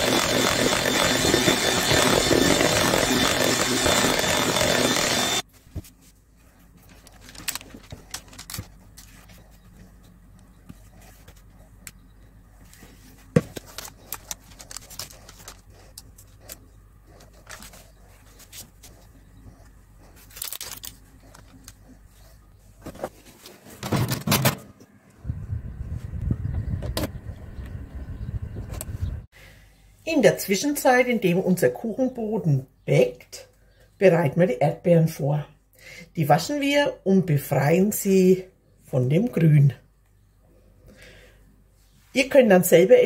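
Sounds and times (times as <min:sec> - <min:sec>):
electric mixer whining: 0:00.0 - 0:05.5.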